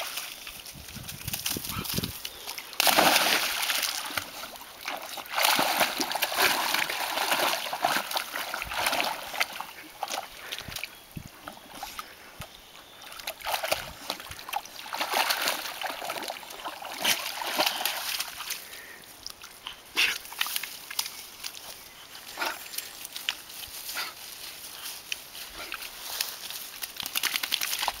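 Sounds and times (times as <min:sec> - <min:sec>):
dog splashing through water: 0:01.3 - 0:10.8, 0:13.1 - 0:18.6.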